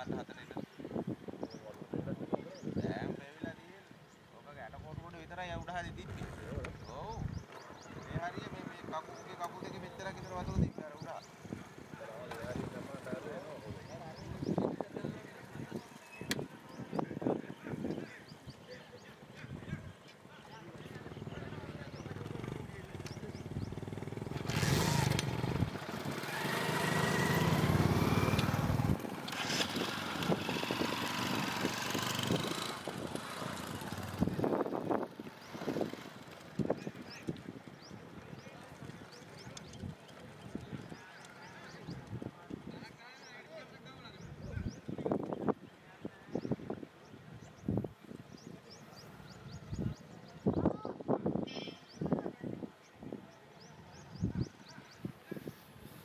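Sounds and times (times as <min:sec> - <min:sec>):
people talking: 0:04.4 - 0:07.3, 0:07.9 - 0:11.2, 0:11.9 - 0:23.9, 0:36.6 - 0:46.6
bird chirping: 0:05.5 - 0:42.1
small engine running: 0:21.9 - 0:36.6.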